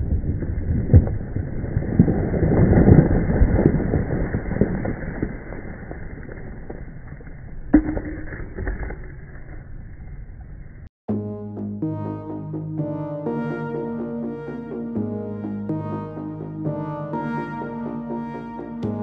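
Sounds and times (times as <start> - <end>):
rock debris rumbling and clattering: 0.0 - 10.9.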